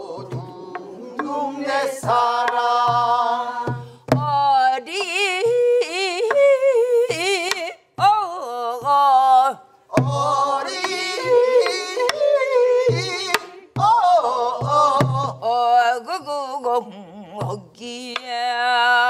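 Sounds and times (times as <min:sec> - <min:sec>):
woman singing folk song: 0:01.7 - 0:10.4, 0:13.3 - 0:19.0
barrel drum thumps: 0:02.0 - 0:04.6.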